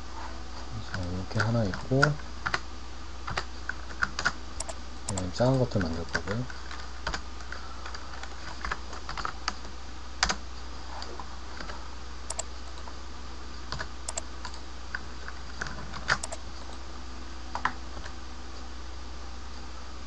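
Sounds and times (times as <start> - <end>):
low hum and hiss: 0.0 - 20.0
keyboard and mouse clicking: 3.3 - 7.2, 12.3 - 12.8, 13.8 - 14.6, 16.0 - 16.8.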